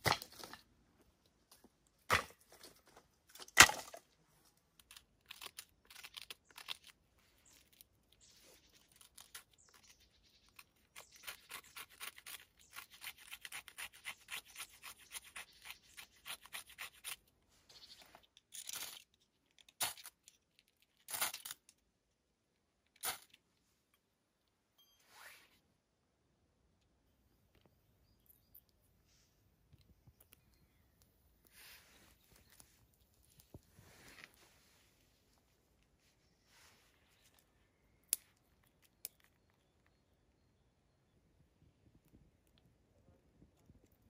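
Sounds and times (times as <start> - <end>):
knife scraping bark on stone: 9.2 - 17.2.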